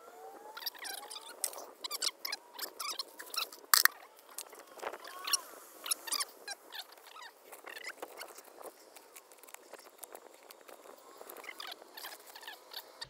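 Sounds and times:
hands scraping soil and gravel: 0.7s - 13.0s
stones crunching and clicking: 2.6s - 5.0s, 6.9s - 13.0s.

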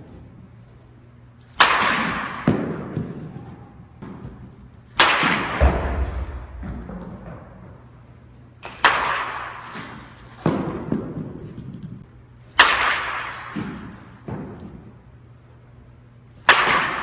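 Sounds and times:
bat cracking against ball: 1.5s - 7.8s, 8.6s - 11.8s, 12.5s - 14.9s, 16.4s - 17.0s.

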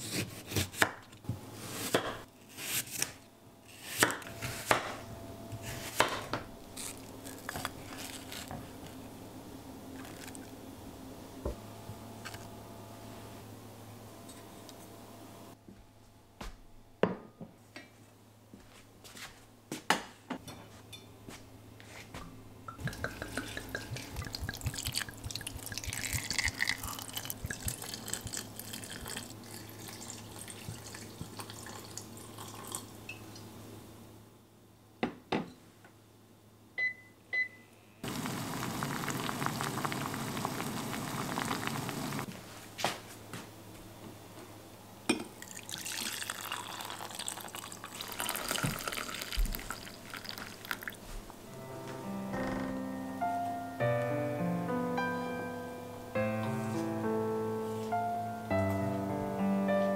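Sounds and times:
light clicks of ingredients: 22.7s - 29.4s
wine pouring and glugging: 22.7s - 32.9s, 45.4s - 51.0s
wine simmering and bubbling: 22.7s - 33.4s, 38.0s - 42.3s, 45.1s - 51.1s.

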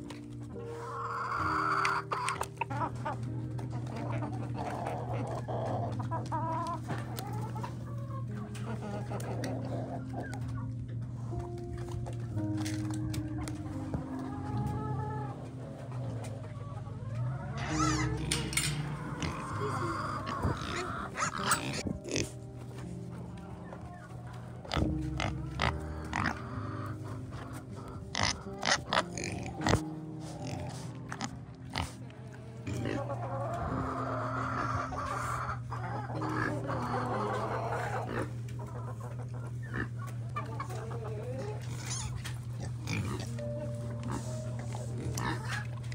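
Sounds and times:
pigs grunting: 0.0s - 12.5s, 13.6s - 45.9s
chickens clucking: 0.0s - 45.9s
pigs squealing: 0.7s - 3.2s, 3.9s - 10.6s, 14.2s - 22.4s, 23.6s - 45.9s
low steady hum: 3.1s - 30.2s.

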